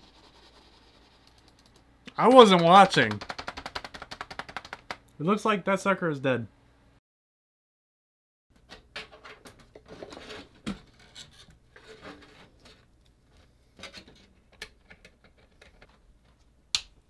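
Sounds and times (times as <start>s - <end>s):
scraping rubs: 9.9s - 12.9s.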